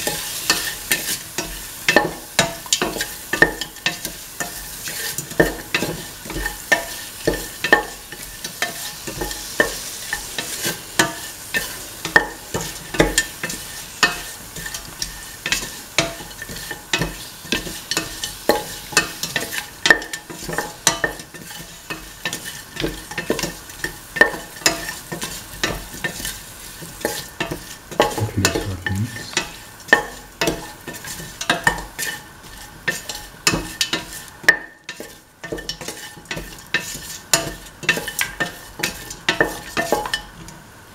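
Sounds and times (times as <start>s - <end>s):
meat sizzling in oil: 0.0s - 28.2s, 29.2s - 40.9s
spatula scraping a metal pan: 20.3s - 26.4s, 30.9s - 34.3s, 34.9s - 40.2s.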